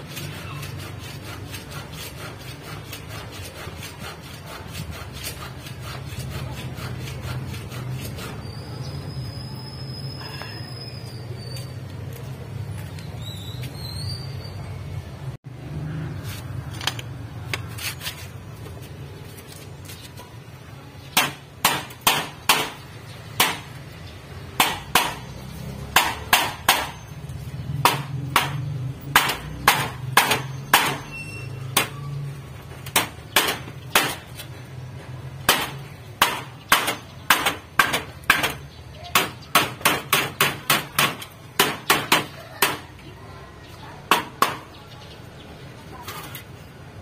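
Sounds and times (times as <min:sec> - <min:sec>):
hammer blows: 0:27.8 - 0:34.4.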